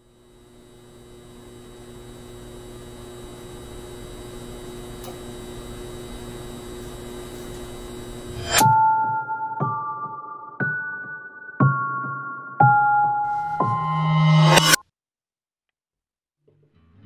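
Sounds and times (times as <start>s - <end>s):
electrical hum: 0.0s - 9.8s.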